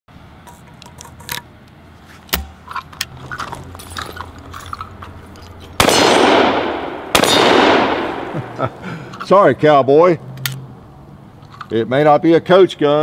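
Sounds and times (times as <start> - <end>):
shotgun action snapping shut: 2.3 - 2.6
shotgun blast echoing: 5.8 - 8.6
shotgun handling clicks: 10.3 - 10.6.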